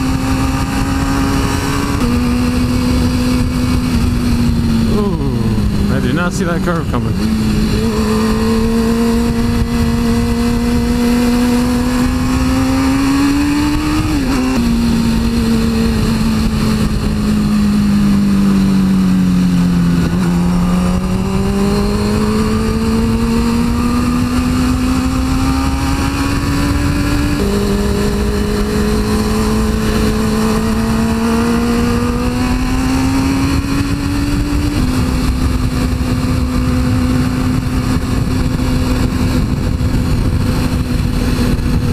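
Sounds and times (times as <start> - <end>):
motorcycle engine revving: 0.0 - 41.9
wind noise on microphone: 0.0 - 41.9.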